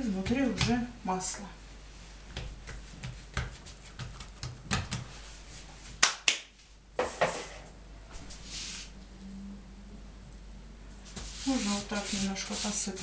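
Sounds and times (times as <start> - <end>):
hands slapping pastry dough: 0.1 - 0.9, 2.2 - 5.2, 5.9 - 6.5.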